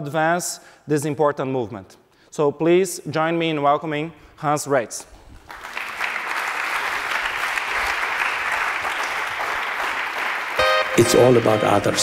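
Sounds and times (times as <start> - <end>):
audience applauding: 5.4 - 12.0
held musical tone: 10.6 - 12.0.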